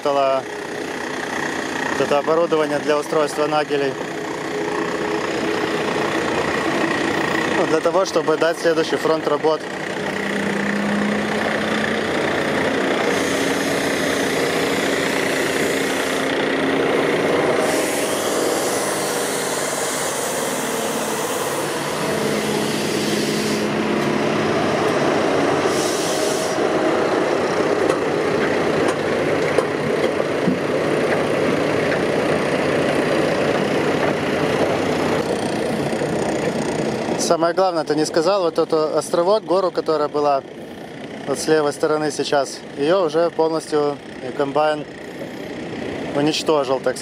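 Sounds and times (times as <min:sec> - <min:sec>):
engine running: 0:00.0 - 0:47.0
broad rushing noise: 0:01.7 - 0:37.4.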